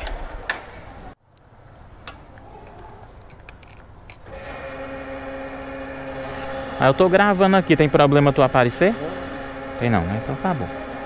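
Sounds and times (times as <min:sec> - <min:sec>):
fuel pump humming: 0:04.2 - 0:11.0.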